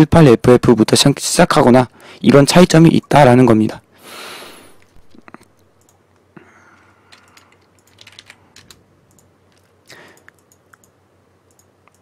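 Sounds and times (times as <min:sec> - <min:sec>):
keyboard and mouse clicks: 0:04.8 - 0:12.0.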